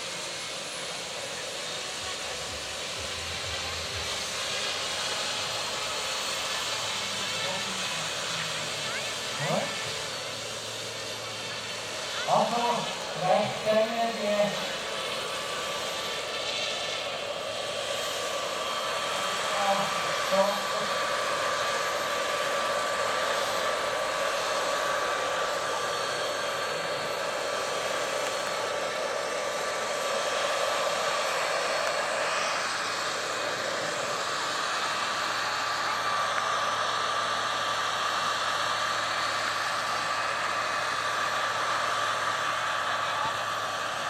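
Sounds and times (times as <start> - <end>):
small gas turbine whine: 0.0 - 44.0.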